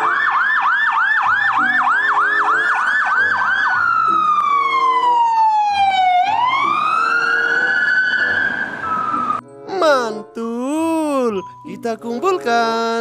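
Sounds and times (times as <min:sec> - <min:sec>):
ambulance siren: 0:00.0 - 0:10.0.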